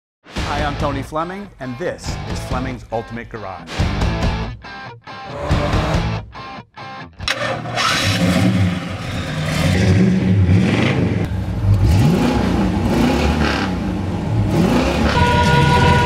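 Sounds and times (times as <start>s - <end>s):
car engine revving: 7.2s - 16.0s.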